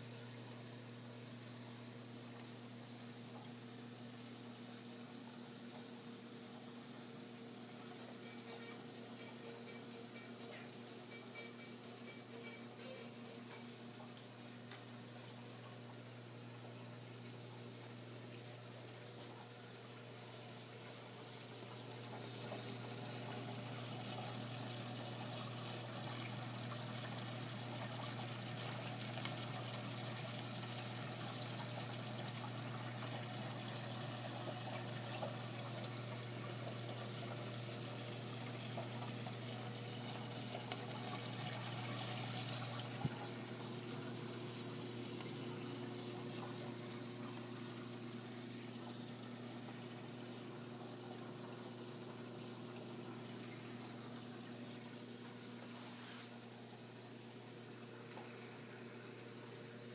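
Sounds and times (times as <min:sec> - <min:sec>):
pumps humming: 0:00.0 - 0:59.9
water pouring and trickling: 0:13.4 - 0:59.9.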